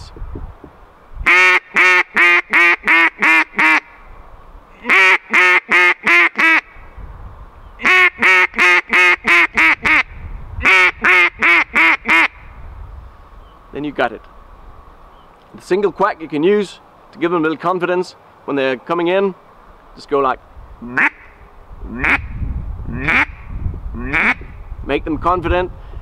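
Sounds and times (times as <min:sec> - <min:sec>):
duck call quacks: 0:01.3 - 0:03.9, 0:04.8 - 0:06.7, 0:07.8 - 0:12.4, 0:20.8 - 0:21.4, 0:22.0 - 0:22.3, 0:23.0 - 0:23.4, 0:24.0 - 0:24.4.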